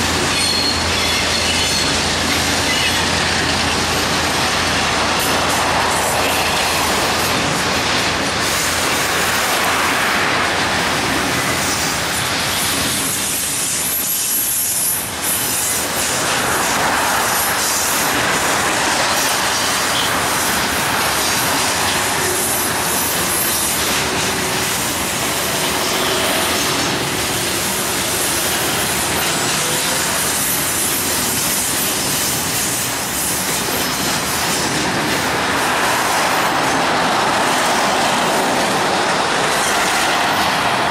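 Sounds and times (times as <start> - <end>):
freight train wheels on rails: 0.0 - 40.9.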